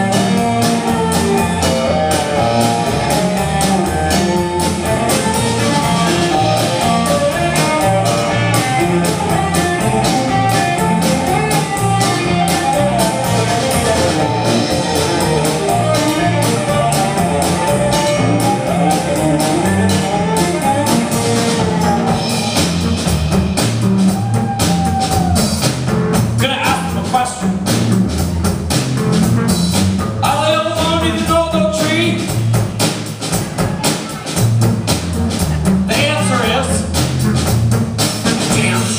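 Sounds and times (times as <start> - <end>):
live rock band playing: 0.0 - 38.9
person singing: 13.4 - 22.4, 30.2 - 32.4, 38.3 - 38.9.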